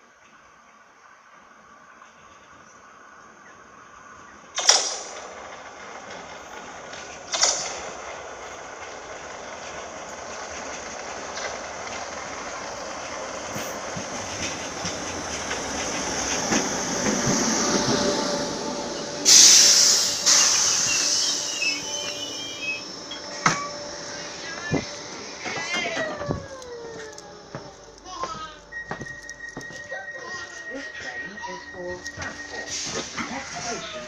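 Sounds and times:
electric train running and braking: 0:00.0 - 0:34.0
air hiss bursts: 0:19.2 - 0:23.1, 0:32.6 - 0:33.9.

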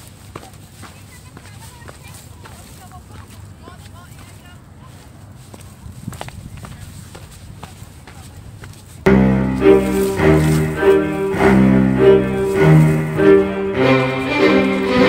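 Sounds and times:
low bowed strings: 0:09.1 - 0:15.0.

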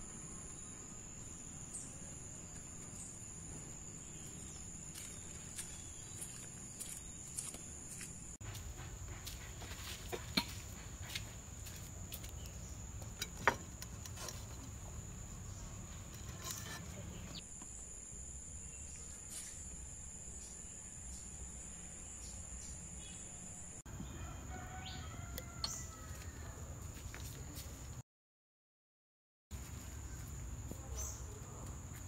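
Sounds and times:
insect drone: 0:00.0 - 0:23.8
bird calls: 0:15.8 - 0:17.4.

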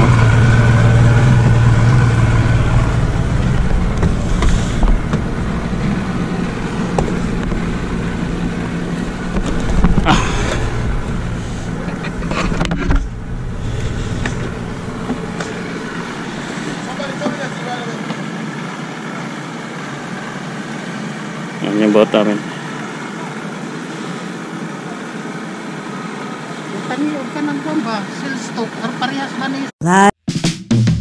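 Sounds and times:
outboard motor idling: 0:00.0 - 0:29.6
sharp knocks and clatter: 0:06.8 - 0:08.0, 0:09.2 - 0:10.6.

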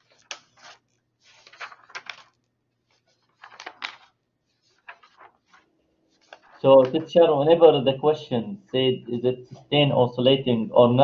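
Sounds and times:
faint clicks and rustles: 0:00.0 - 0:07.1.

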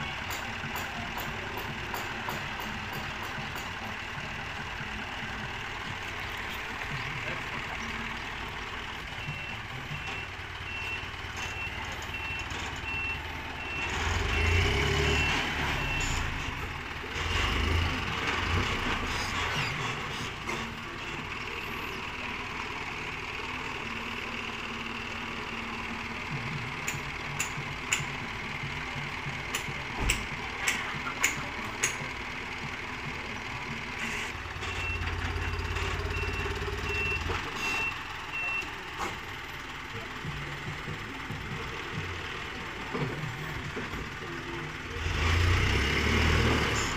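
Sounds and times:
truck engine running: 0:00.0 - 0:46.9
truck reversing alarm beeps: 0:07.6 - 0:16.8, 0:33.8 - 0:42.2.

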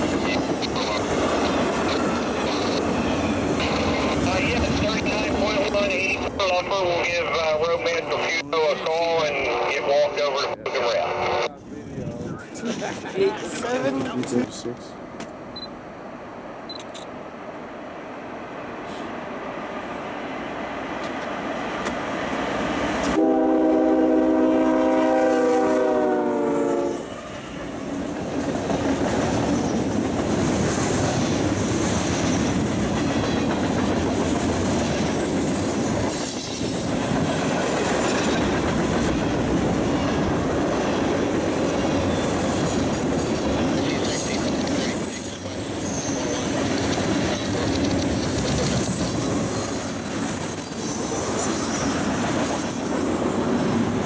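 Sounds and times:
train wheels rumbling on rails: 0:00.0 - 0:09.2, 0:18.4 - 0:54.0
locomotive air horn: 0:23.1 - 0:27.1
high-pitched wheel squeal: 0:44.2 - 0:46.5, 0:49.1 - 0:52.1.

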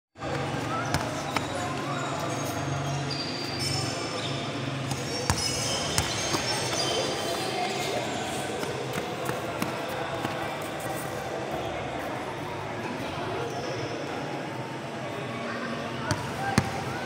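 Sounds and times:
background chatter: 0:00.2 - 0:17.0
basketball bouncing indoors: 0:04.9 - 0:06.8.

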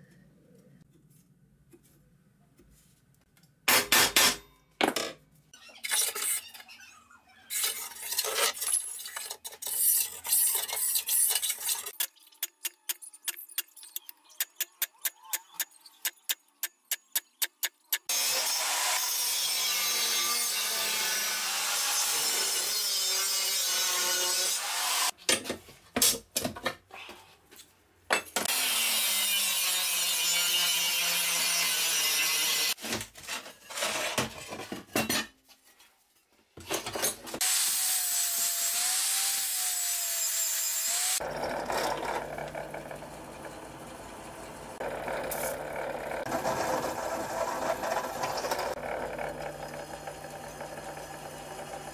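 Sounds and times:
angle grinder cutting steel: 0:17.2 - 0:25.1, 0:28.5 - 0:32.8, 0:37.4 - 0:51.9.

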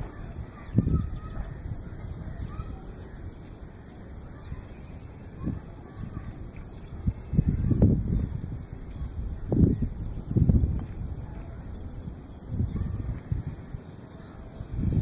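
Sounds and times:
faint bird calls and chirps: 0:00.0 - 0:15.0
wind buffeting microphone: 0:00.0 - 0:15.0.

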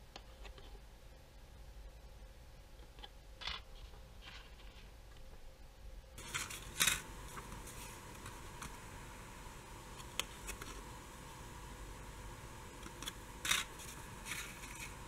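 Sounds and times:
paper rustling and crinkling: 0:03.4 - 0:05.0, 0:06.2 - 0:08.8, 0:13.0 - 0:15.0.

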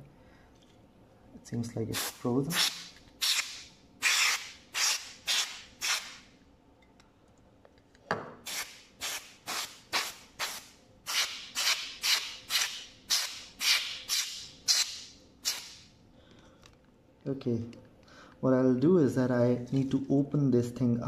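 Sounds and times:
compressed air hissing bursts: 0:02.0 - 0:06.2, 0:08.4 - 0:15.9.

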